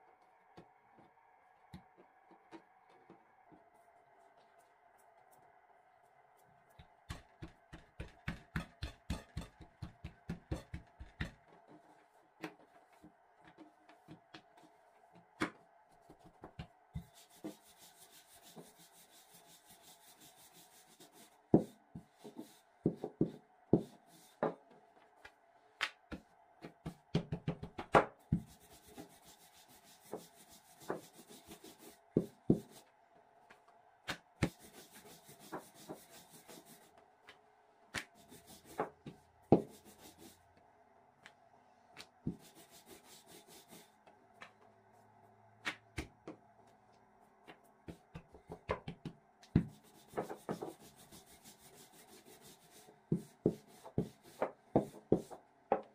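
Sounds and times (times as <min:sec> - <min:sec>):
rolling pin rubbing on dough: 0:07.0 - 0:11.9, 0:17.0 - 0:24.6, 0:28.3 - 0:32.8, 0:34.4 - 0:36.9, 0:38.0 - 0:40.4, 0:42.3 - 0:44.0, 0:49.6 - 0:55.4.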